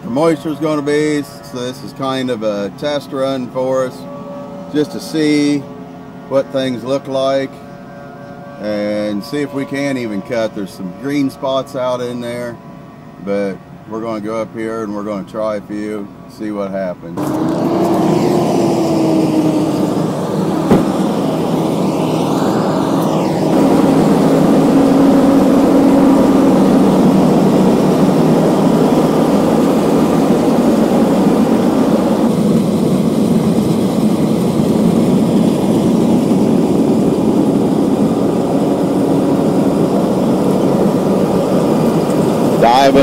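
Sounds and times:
combine diesel engine running: 17.2 - 43.0.

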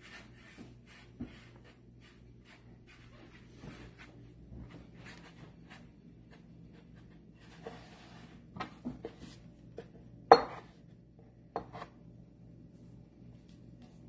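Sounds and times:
dough rubbing on wooden board: 0.0 - 8.5.

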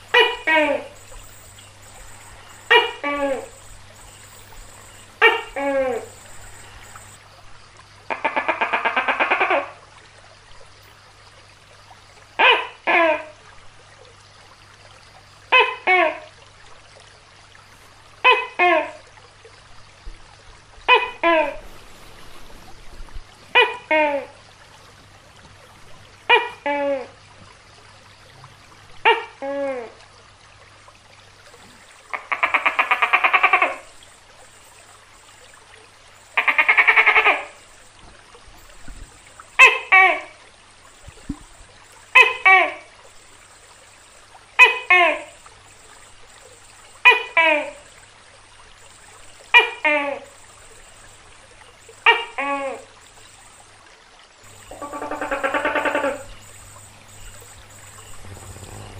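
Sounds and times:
gecko calling: 0.0 - 7.2, 36.2 - 37.9, 38.6 - 47.8, 48.9 - 51.2, 51.8 - 53.5, 54.5 - 58.9
gecko rattling calls: 0.0 - 7.2
faint steady hiss: 0.0 - 58.9.

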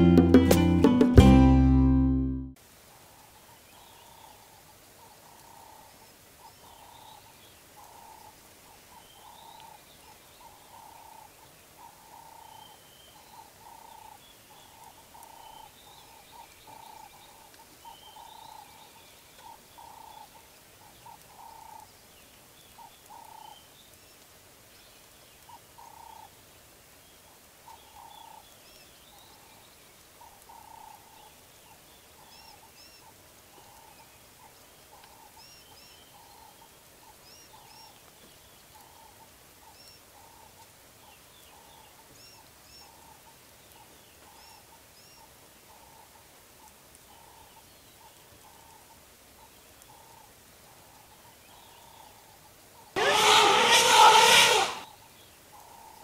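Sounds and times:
bird call mid-pitched: 53.0 - 54.9.

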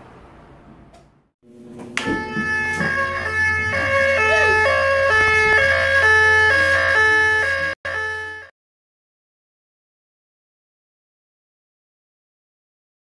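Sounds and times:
low hum: 0.0 - 6.5
fire alarm tone: 2.0 - 8.5.

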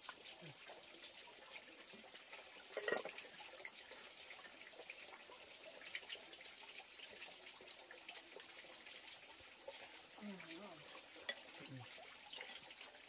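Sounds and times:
metal pot lid clank: 2.8 - 3.1.

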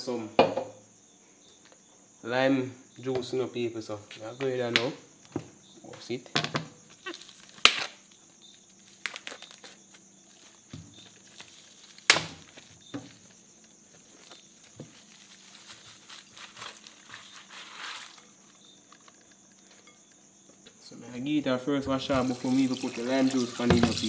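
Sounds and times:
plastic bag crinkling: 7.0 - 19.8.

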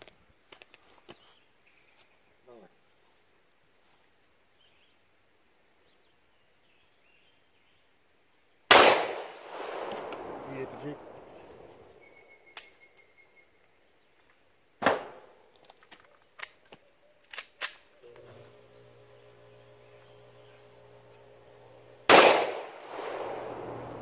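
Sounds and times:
pistol shots with echo: 8.7 - 11.7, 22.1 - 24.0
faint sharp cracks: 8.7 - 12.0, 22.1 - 24.0.

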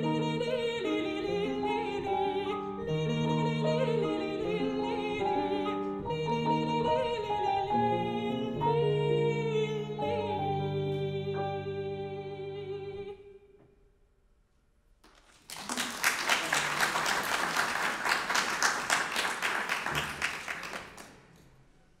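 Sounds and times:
audience applause: 15.1 - 21.5.

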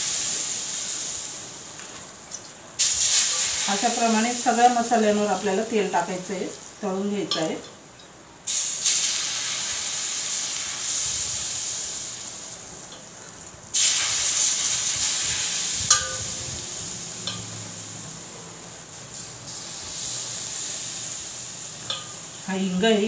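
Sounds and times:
hot oil sizzling on spices: 0.0 - 23.0
spoon clinking on steel plate: 15.9 - 16.4, 17.2 - 17.5, 21.8 - 22.2.

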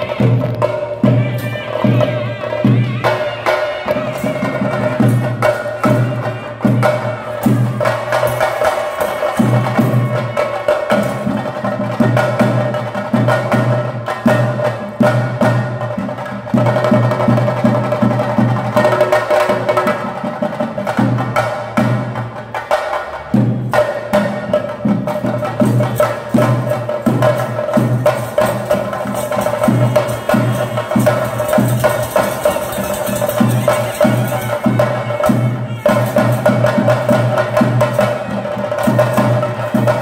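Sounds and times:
drums playing rapid rhythm: 0.0 - 40.0
double-reed pipe high note: 28.6 - 36.9.

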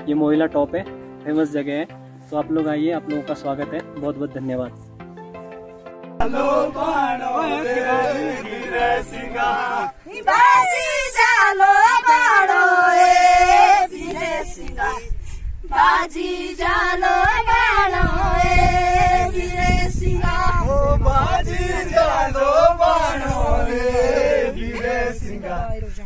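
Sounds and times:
group singing folk song: 6.2 - 25.9.

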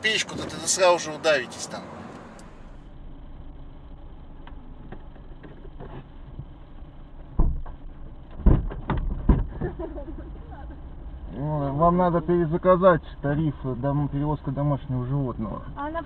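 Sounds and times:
low rumble inside a car: 0.0 - 16.0
loud knocks and thumps: 7.4 - 9.8.

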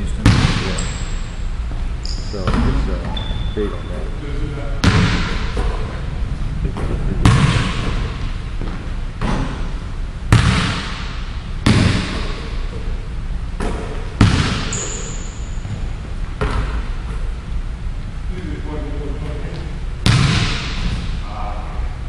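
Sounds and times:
basketball bouncing on hardwood floor: 0.2 - 1.0, 2.4 - 3.2, 4.8 - 5.8, 6.8 - 9.6, 10.3 - 12.4, 13.6 - 17.2, 20.0 - 20.8
high squeak: 2.0 - 2.5, 3.1 - 4.0, 14.7 - 15.6.

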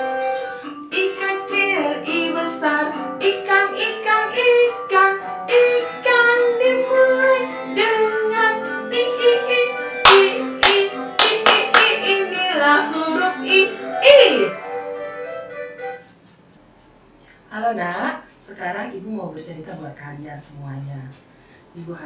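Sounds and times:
instrumental backing music: 0.0 - 17.3
woman singing children's song: 0.9 - 14.6.

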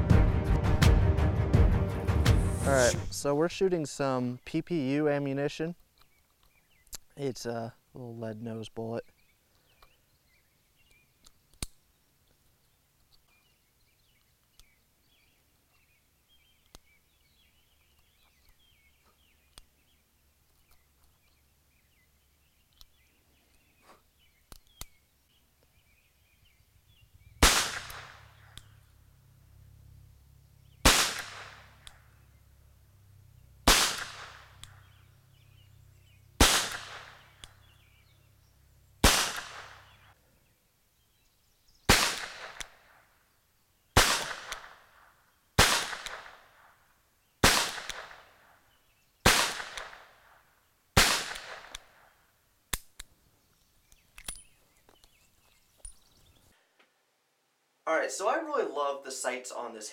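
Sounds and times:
revolver shots with ringing tail: 27.0 - 38.2, 39.0 - 40.1.

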